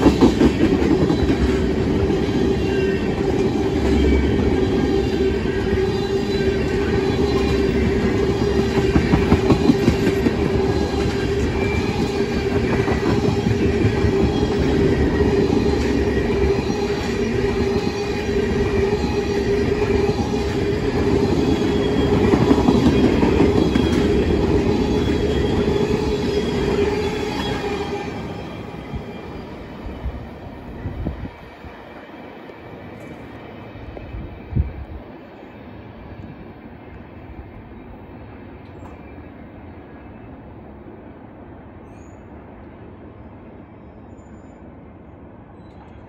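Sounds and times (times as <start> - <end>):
train wheels rumbling on rail: 0.0 - 46.0.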